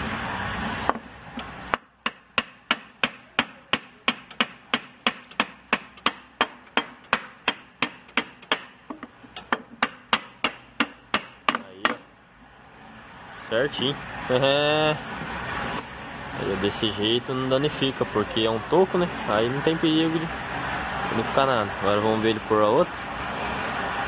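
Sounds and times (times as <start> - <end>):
hammer knocking on wooden block: 1.7 - 12.1.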